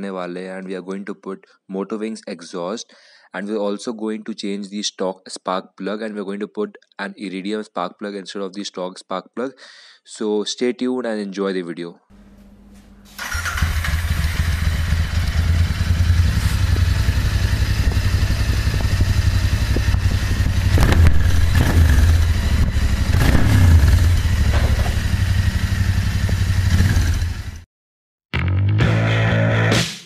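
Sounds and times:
motorcycle throttle blips: 13.2s - 27.5s
motorcycle engine idling: 13.2s - 27.6s.

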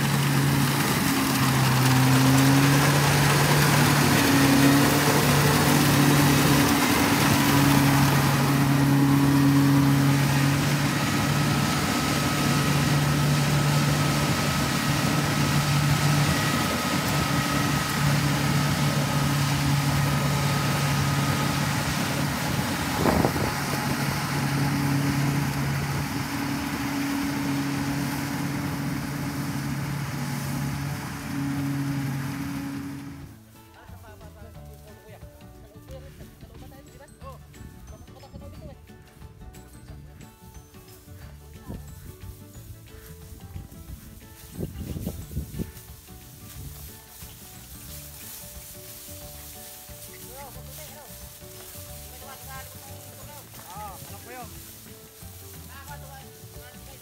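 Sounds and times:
combine harvester engine drone: 0.0s - 33.4s
threshing drum rushing noise: 0.0s - 33.4s.

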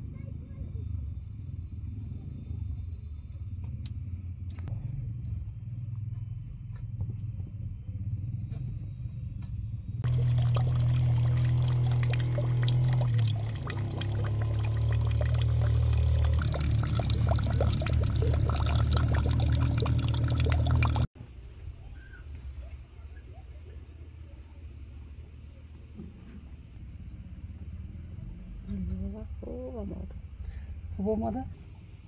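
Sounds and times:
low rumble: 0.0s - 22.7s, 24.8s - 32.0s
water pouring into a plastic bucket: 10.0s - 21.1s.

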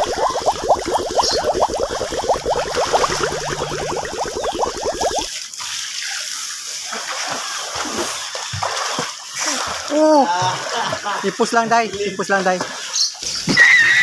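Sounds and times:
water gurgling in bubbly plops: 0.0s - 5.3s
children swimming and splashing: 0.0s - 13.0s.

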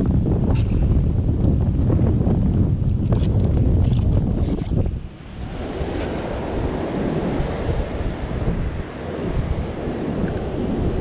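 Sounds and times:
wind buffeting microphone: 0.0s - 11.0s
ocean surf breaking: 5.0s - 11.0s.

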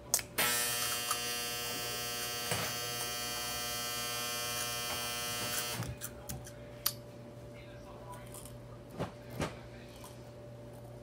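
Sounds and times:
steady electric buzz: 0.1s - 6.0s.

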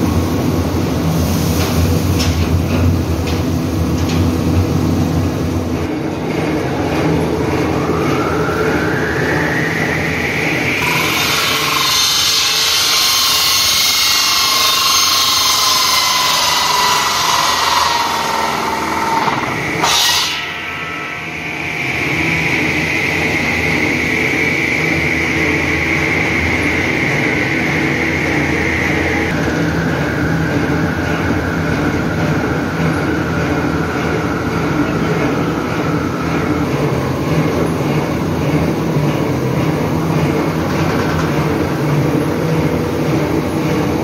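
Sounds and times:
hum of extrusion line: 0.0s - 44.0s
circular saw cutting plastic pipe: 10.7s - 24.0s.

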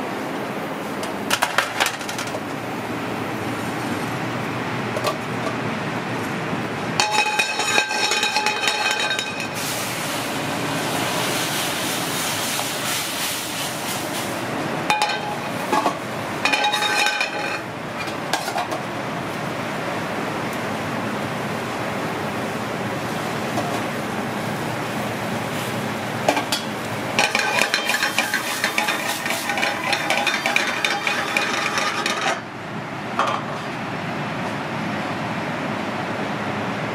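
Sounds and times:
kitchen background noise: 0.8s - 20.8s, 21.4s - 33.8s
metal cookware clinking: 7.0s - 9.6s, 14.9s - 18.7s, 26.3s - 32.5s.

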